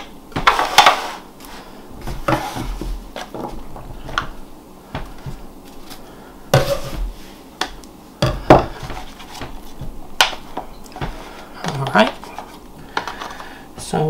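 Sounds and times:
metal scraper scraping on wood: 6.6 - 7.0.

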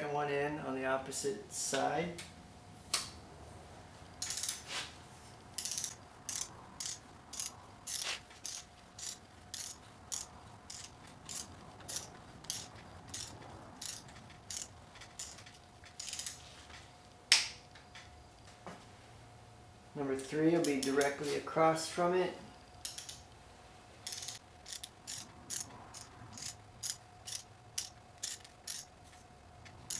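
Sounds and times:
torque wrench ratchet clicking: 4.2 - 4.6, 5.6 - 16.4, 22.8 - 23.2, 24.0 - 28.9, 29.6 - 29.9.

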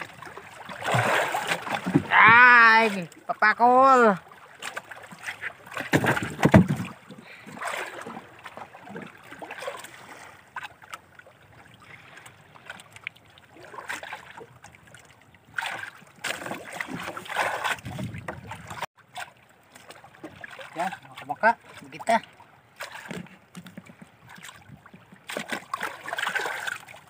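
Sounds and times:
water slapping against boat: 0.0 - 27.0
wind buffeting microphone: 17.8 - 18.8.

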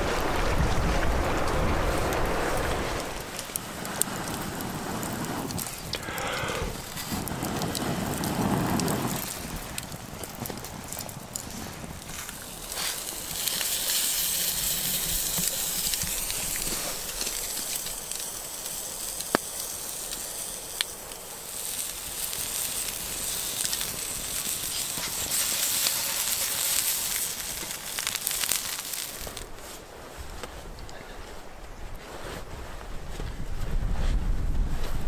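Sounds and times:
meat sizzling in a pan: 12.1 - 29.5.

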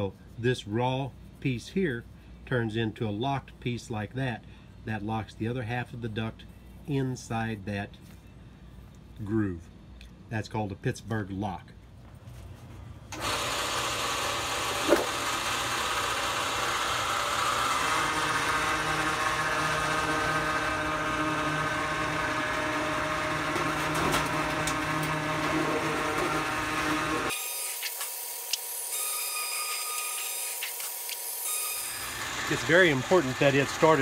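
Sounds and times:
thin machine whine: 13.1 - 34.0
roll-forming machine whirring: 13.2 - 27.3.

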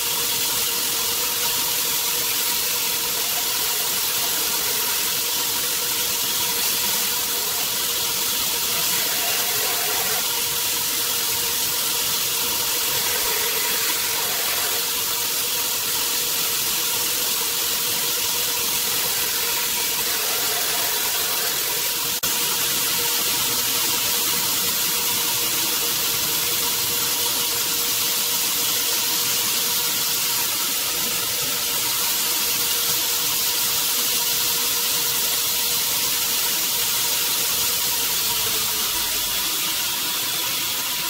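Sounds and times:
belt grinder steady tone: 0.0 - 28.0, 34.9 - 41.0
knife blade grinding hiss: 12.8 - 15.2.

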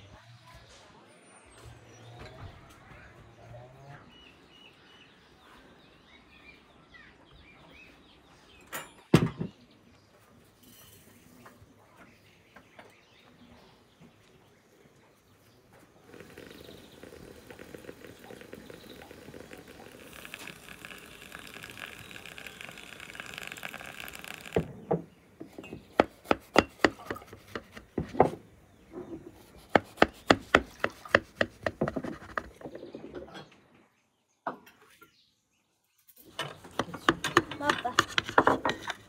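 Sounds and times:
liquid pouring into a glass: 16.0 - 24.7.

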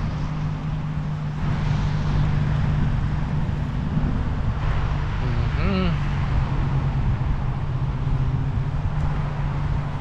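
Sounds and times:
constant low hum: 0.0 - 10.0.

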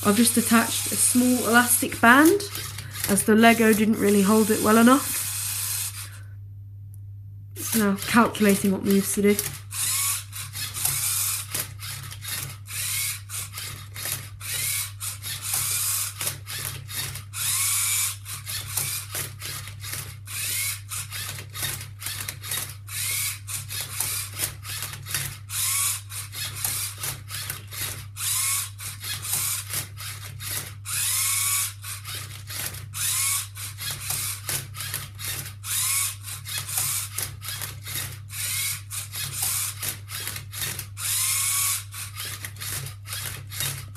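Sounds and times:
robot motors whining: 0.0 - 6.2, 7.6 - 43.9
plastic parts clicking and clattering: 18.4 - 22.8, 31.9 - 43.9.

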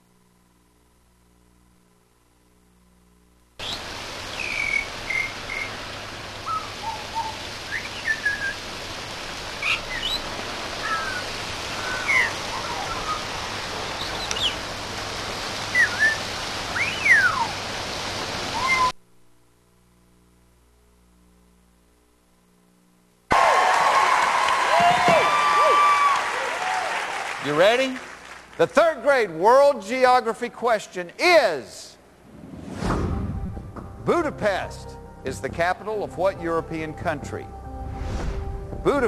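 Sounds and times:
bird whistles and chirps: 3.6 - 5.8, 6.4 - 8.6, 9.6 - 13.4, 14.0 - 14.6, 15.7 - 17.6, 18.5 - 18.9
rain hiss: 3.6 - 19.0, 23.4 - 33.3.

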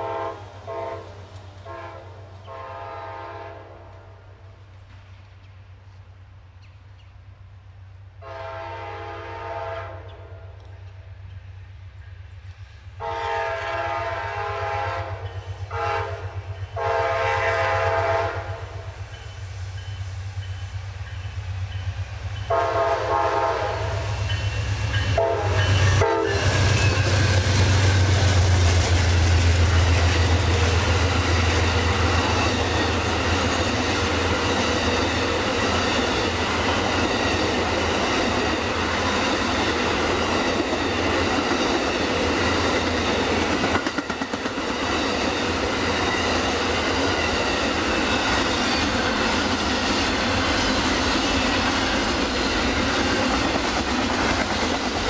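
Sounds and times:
train horn blasts: 0.0 - 4.4, 8.2 - 10.6, 13.0 - 18.9, 22.4 - 28.0.

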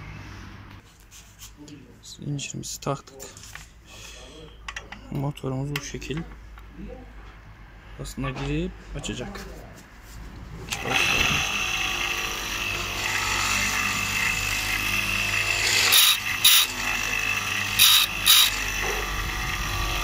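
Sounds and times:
grinder wheel grinding chain: 10.7 - 20.0
sharpening grinder whining: 10.7 - 20.0.

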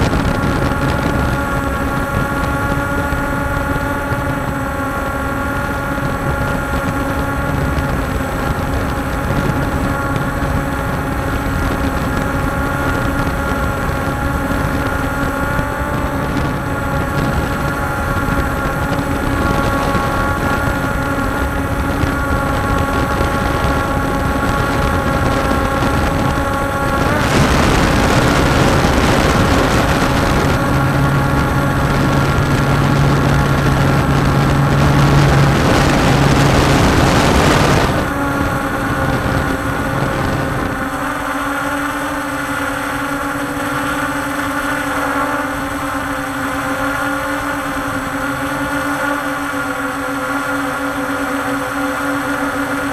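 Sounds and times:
drone motors whining: 0.0 - 52.9
loud rushing noise: 11.1 - 41.4.

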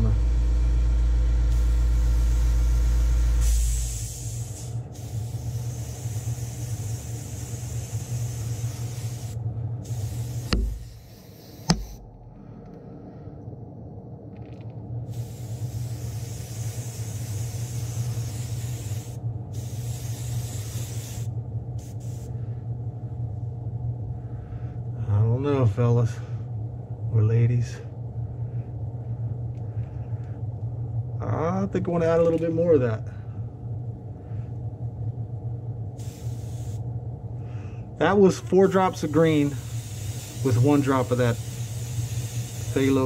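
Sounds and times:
spray booth hum: 0.0 - 12.6, 15.1 - 22.5, 35.9 - 43.0
airbrush spraying hiss: 1.5 - 12.0, 15.1 - 22.3, 36.0 - 36.9, 38.6 - 43.0
deep rumble: 11.8 - 16.1, 21.3 - 36.0.

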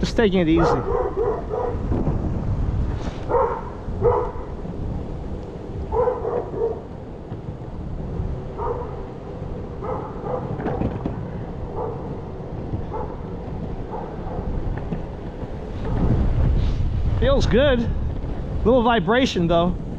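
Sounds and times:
wind rumbling on microphone: 0.0 - 19.9
short barks: 0.6 - 1.8.

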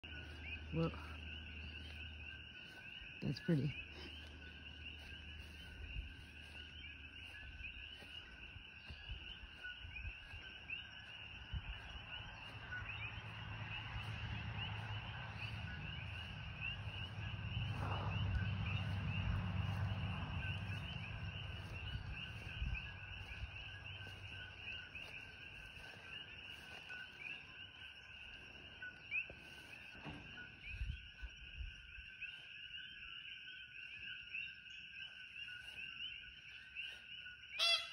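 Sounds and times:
chorus of frogs chirping: 0.0 - 37.9
low rumble: 11.2 - 25.8.

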